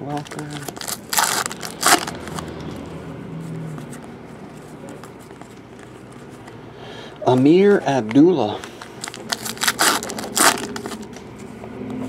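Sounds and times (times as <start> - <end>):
cards rustling: 0.0 - 3.0, 3.6 - 11.6
foil wrapper crinkling and tearing: 0.1 - 2.4, 8.1 - 11.2.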